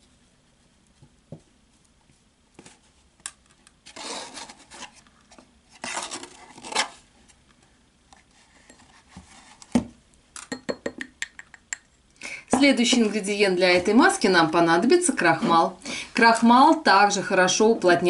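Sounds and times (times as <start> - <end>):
plastic spoon scraping baking soda: 3.9 - 5.0.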